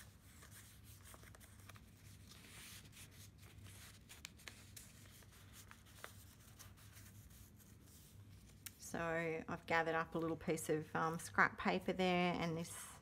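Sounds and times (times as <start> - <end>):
paper rustling: 0.0 - 8.8.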